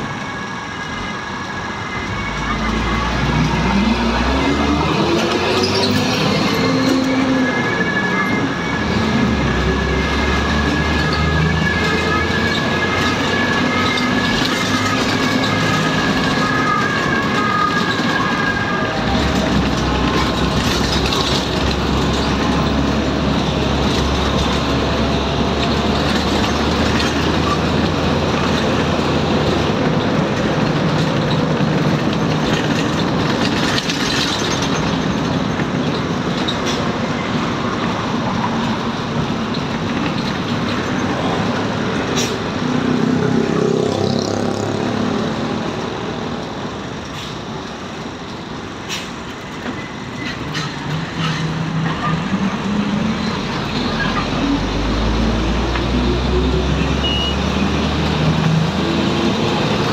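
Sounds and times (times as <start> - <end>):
bus engine drone: 0.0 - 59.9
road noise: 0.0 - 59.9.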